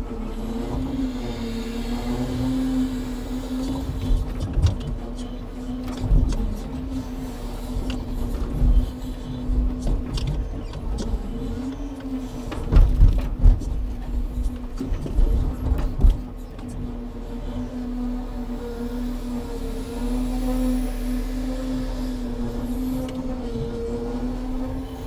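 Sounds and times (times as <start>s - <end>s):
truck engine and hydraulics drone: 0.0s - 25.0s.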